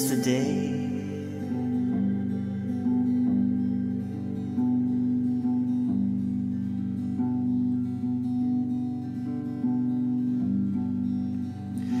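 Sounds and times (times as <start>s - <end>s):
acoustic guitar chords: 0.0s - 12.0s.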